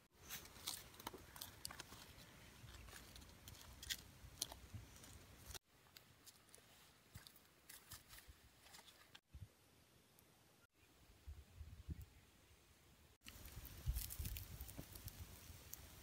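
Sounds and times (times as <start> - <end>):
faint small clicks and crackles: 13.2 - 16.0.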